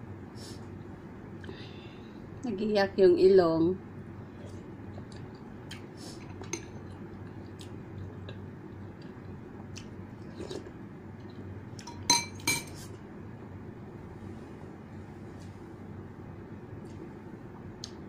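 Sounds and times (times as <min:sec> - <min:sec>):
cutlery clinking against a bowl: 0:11.8 - 0:12.8.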